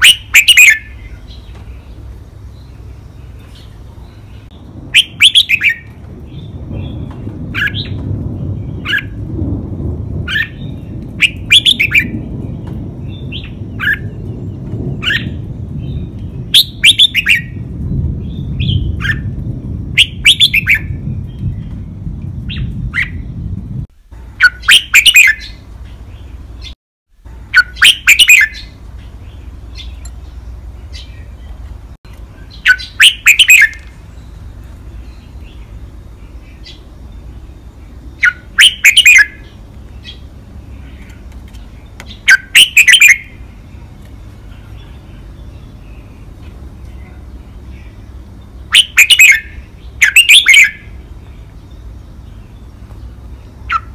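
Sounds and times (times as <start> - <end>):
bird singing clear phrases: 0.0 - 9.3, 10.3 - 26.8, 27.4 - 53.9
low rumble: 0.0 - 24.4.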